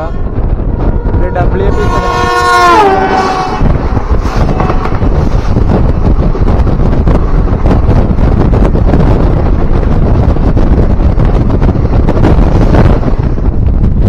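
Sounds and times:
train coaches rushing and clattering: 0.0 - 14.0
wind on microphone: 0.0 - 14.0
locomotive horn: 0.8 - 5.1.

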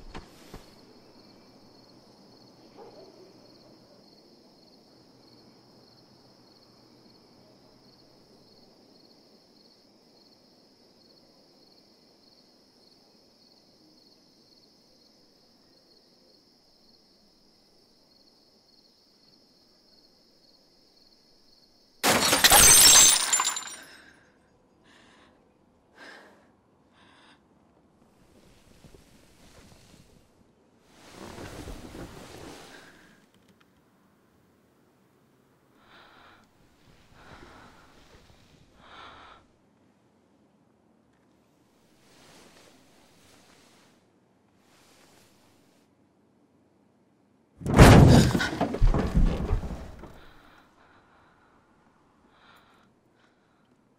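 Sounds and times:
glass pieces clinking: 22.0 - 23.9
glass shattering: 22.0 - 23.9, 47.6 - 49.6.

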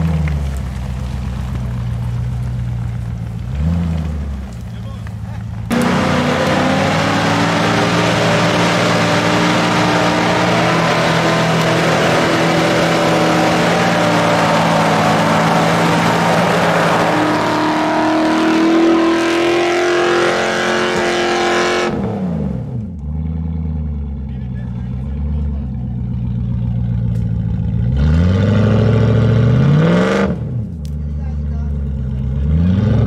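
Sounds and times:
car engine revving hard: 5.7 - 22.8, 27.8 - 30.6, 32.3 - 33.0.

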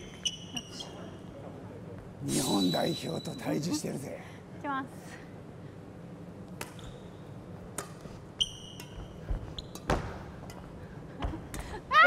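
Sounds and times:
racket hitting shuttlecock: 7.7 - 8.1.

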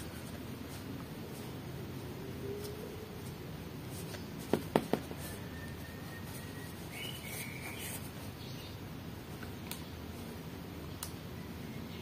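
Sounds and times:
sharp taps on foam toy: 4.5 - 5.2.

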